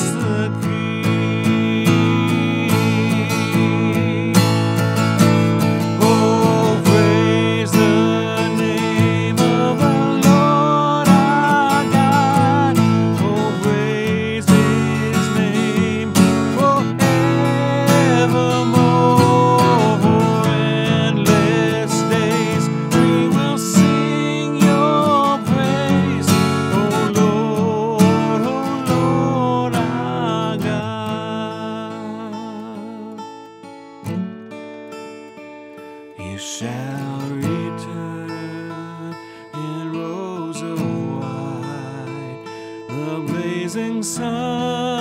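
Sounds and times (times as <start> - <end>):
acoustic guitar strumming hymn: 0.0 - 45.0.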